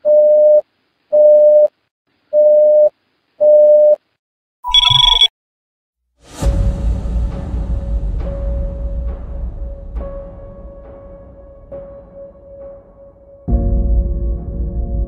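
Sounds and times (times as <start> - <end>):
electronic beeps: 4.6 - 5.3
two-tone electronic chirp: 4.6 - 5.3.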